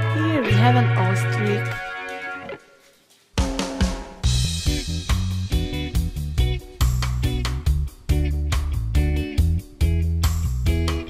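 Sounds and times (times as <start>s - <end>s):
bass line: 0.0s - 1.9s, 4.3s - 11.0s
strummed guitar chords: 0.0s - 2.6s.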